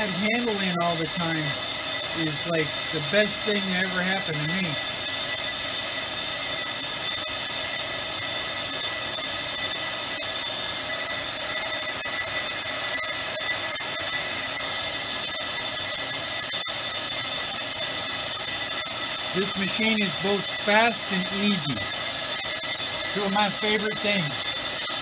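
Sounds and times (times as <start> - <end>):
brake lathe whining: 0.0 - 25.0.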